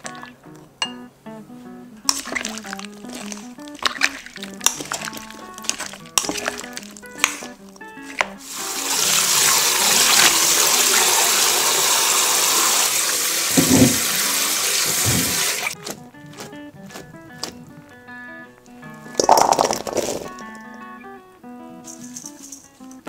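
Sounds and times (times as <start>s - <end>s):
tap water running into sink: 8.1s - 15.9s, 19.2s - 20.5s.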